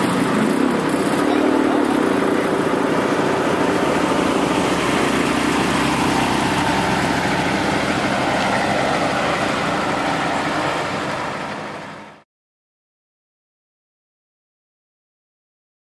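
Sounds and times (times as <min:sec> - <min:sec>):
car engine running at low speed: 0:00.0 - 0:12.2.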